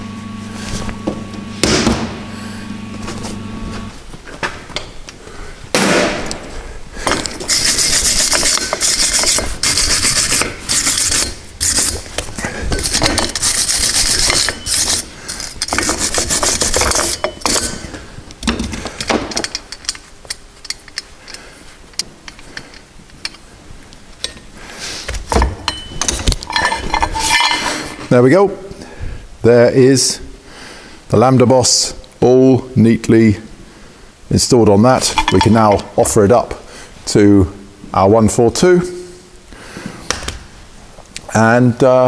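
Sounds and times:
wire brush scrubbing metal pipe: 7.4s - 17.8s.

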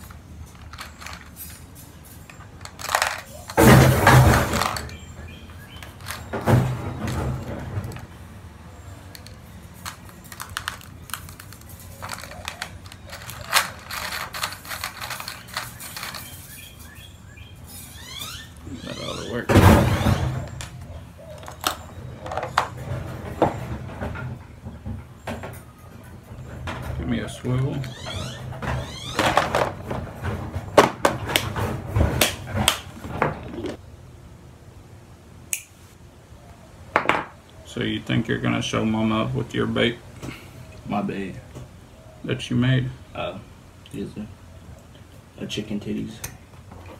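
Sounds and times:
plastic tackle clicking and rattling: 9.1s - 16.3s.

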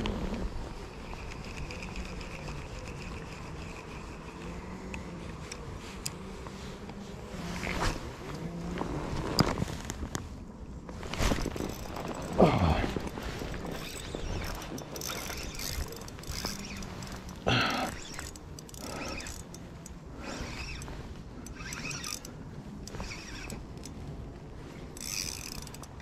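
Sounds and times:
fishing reel ratchet winding: 0.9s - 5.6s, 13.0s - 23.6s, 25.0s - 26.0s.

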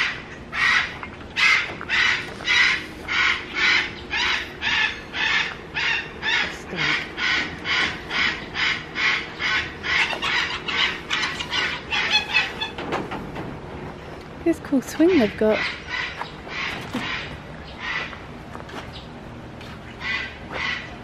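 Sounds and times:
animal's harsh call: 0.0s - 12.8s, 15.1s - 18.2s, 20.0s - 21.0s.

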